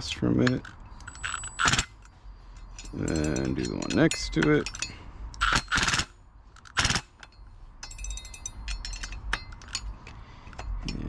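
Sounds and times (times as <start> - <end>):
cordless drill driving bolts: 1.0 - 2.0, 4.0 - 7.2.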